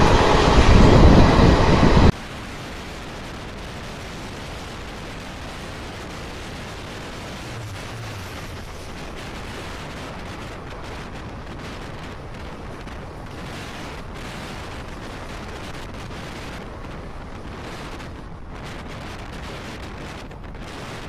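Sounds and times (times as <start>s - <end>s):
passing train rushing rumble: 0.0s - 2.1s, 5.7s - 13.4s.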